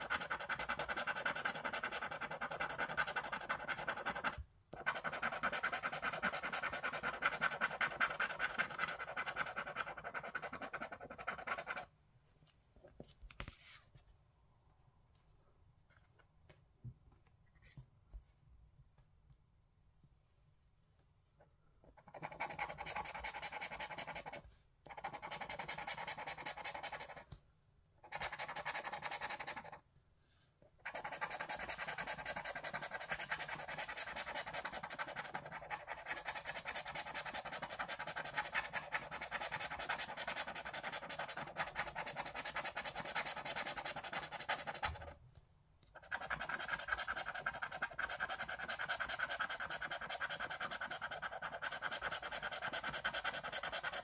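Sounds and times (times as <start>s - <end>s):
scratcher scraping a scratchcard: 30.9s - 45.1s, 46.0s - 54.0s.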